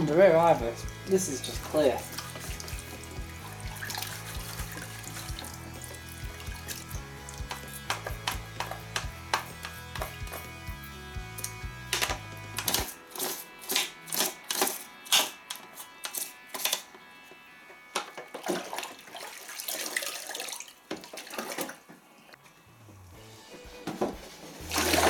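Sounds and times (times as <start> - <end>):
water splashing in a bowl: 0.8 - 8.9, 18.4 - 21.8, 24.7 - 25.0
toothbrush scrubbing plastic: 0.8 - 10.6.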